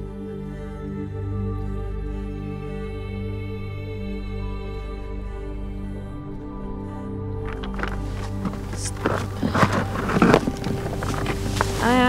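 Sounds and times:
steady low hum: 0:07.4 - 0:12.0
rope and plastic rustling: 0:07.5 - 0:12.0.

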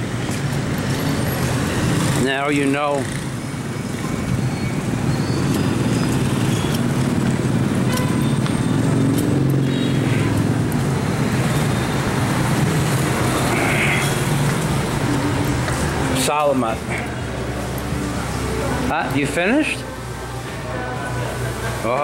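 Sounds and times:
street traffic: 0:00.0 - 0:22.0.

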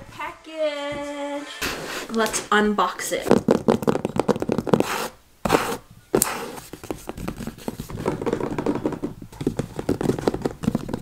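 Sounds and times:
fingernails tapping on cardboard box: 0:06.7 - 0:11.0.

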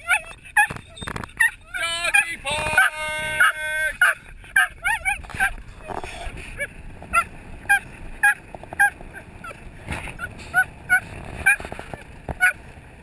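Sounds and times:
dog yelping whines: 0:00.0 - 0:05.6
wind and tyre noise: 0:00.0 - 0:13.0.

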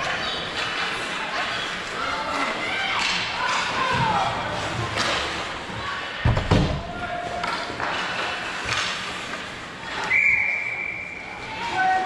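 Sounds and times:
referee's whistle: 0:10.1 - 0:11.3.

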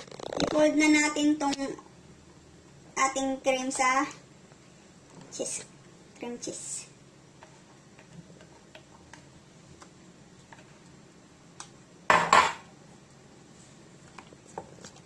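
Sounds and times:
dishware clatter: 0:12.1 - 0:12.6.

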